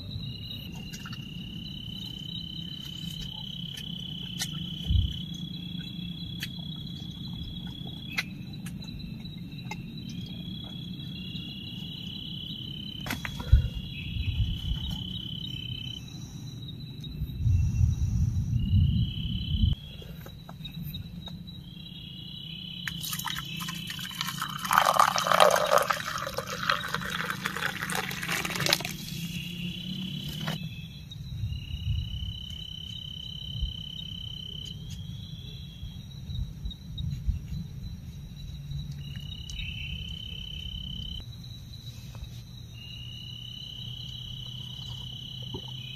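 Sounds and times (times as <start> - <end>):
crickets chirping: 0.0 - 45.9
water pouring into metal mug: 23.0 - 29.0.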